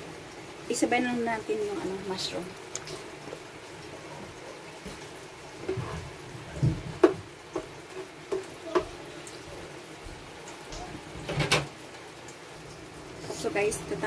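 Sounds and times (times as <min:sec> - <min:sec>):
sauce bubbling in a pan: 0:00.0 - 0:14.0
spatula knocking in pan: 0:06.6 - 0:09.0.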